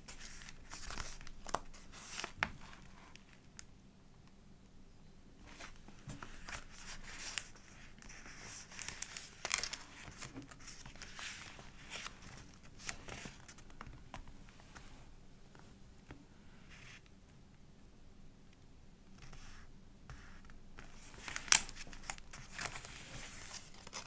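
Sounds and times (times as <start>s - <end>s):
paper pages rustling: 0.1s - 3.7s, 5.5s - 15.0s, 20.2s - 24.0s.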